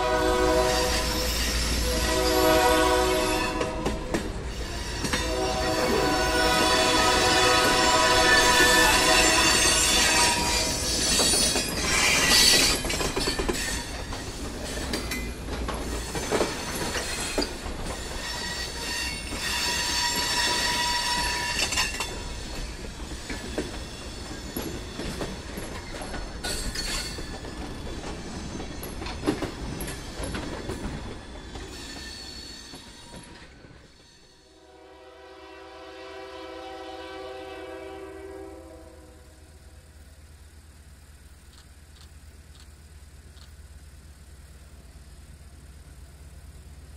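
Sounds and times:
locomotive horn: 0.0 - 4.2, 4.9 - 10.8, 34.5 - 39.6
train wheels squealing and knocking: 0.7 - 2.5, 3.2 - 34.5.

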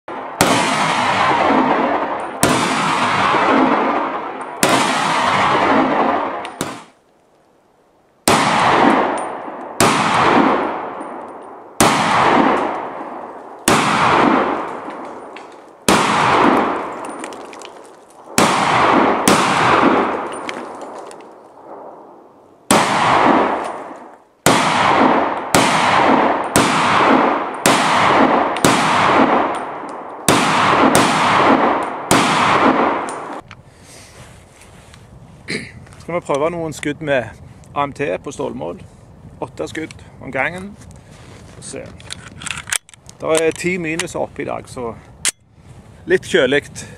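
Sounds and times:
pistol shots with echo: 0.1 - 7.0, 8.2 - 21.0, 22.7 - 33.4.

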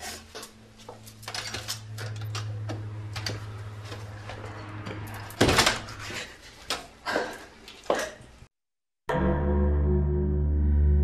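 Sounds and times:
low hum: 9.1 - 11.0.

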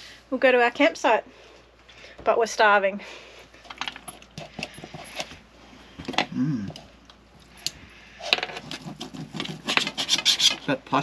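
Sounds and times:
rubbing noises: 8.5 - 11.0.

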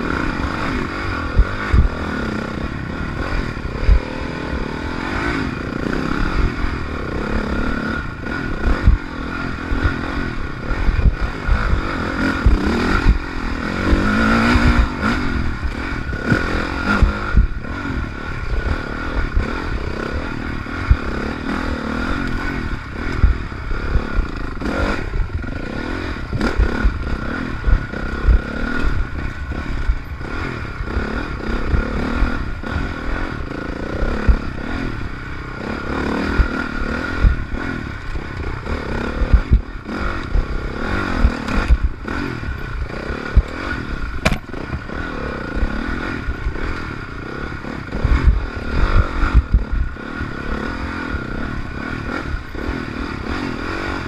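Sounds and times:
dirt bike engine revving: 0.0 - 54.0
bike thumps and rattles: 43.4 - 45.0.

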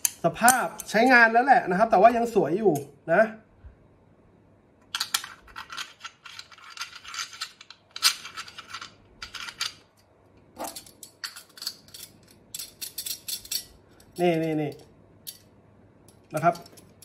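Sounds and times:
metal stove parts clicking: 0.0 - 1.2, 10.6 - 15.5, 16.1 - 17.0.

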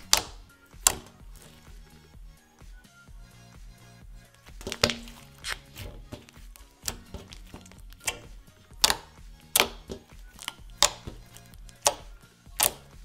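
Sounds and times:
slime sticky pops and clicks: 0.0 - 1.2, 4.6 - 5.6, 6.2 - 12.9.

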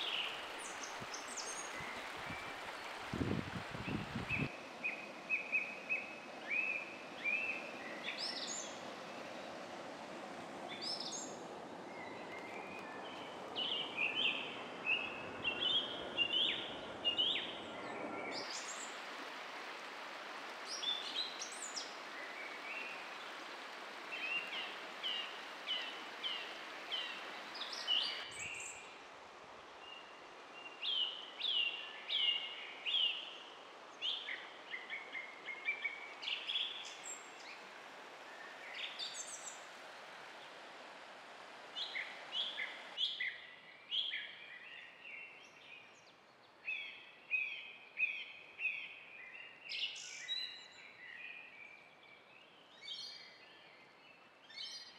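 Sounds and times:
river water rushing: 0.0 - 43.6
songbirds chirping: 0.0 - 54.9.

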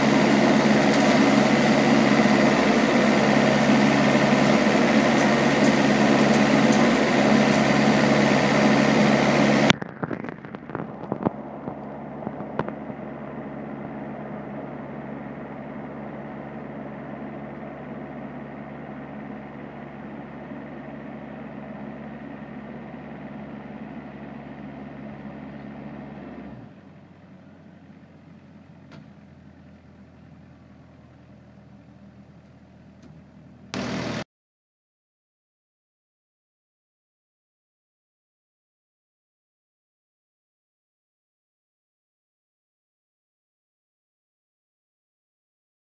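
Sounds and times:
street sweeper running: 0.0 - 34.2.

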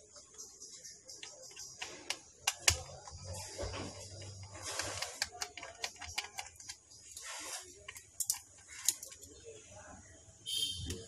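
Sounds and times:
screwdriver clicks and taps on metal: 1.2 - 3.1, 5.1 - 6.8.

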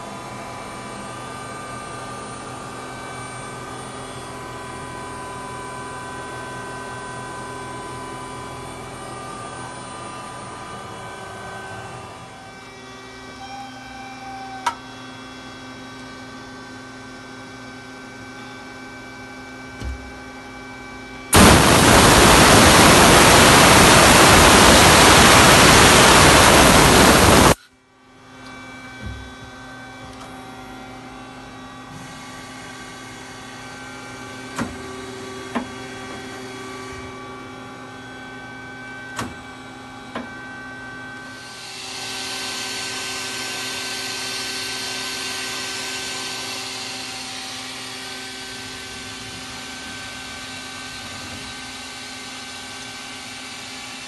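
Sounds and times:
lathe electrical hum: 0.0 - 54.0
loud rushing hiss: 21.3 - 27.6.

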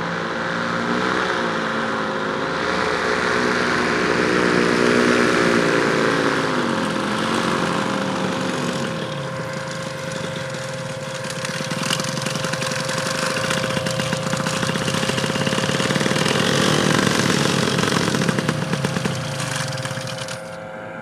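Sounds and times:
paramotor engine and propeller: 0.0 - 21.0.

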